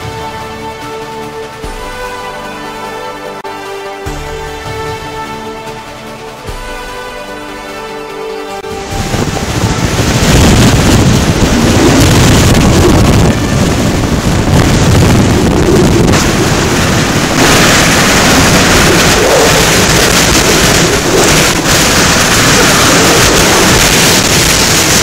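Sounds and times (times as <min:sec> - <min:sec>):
wind buffeting microphone: 0:08.6 - 0:25.0.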